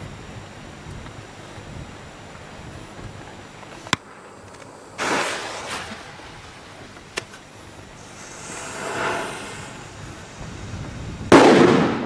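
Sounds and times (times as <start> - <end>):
firecrackers cracking: 3.9 - 7.3
short rushing burst: 8.0 - 10.6.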